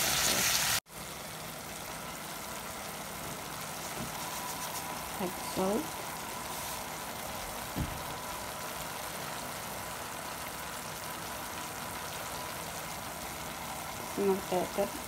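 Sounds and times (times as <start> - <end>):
meat simmering in a pot: 0.0 - 15.0
low thump: 7.7 - 8.1.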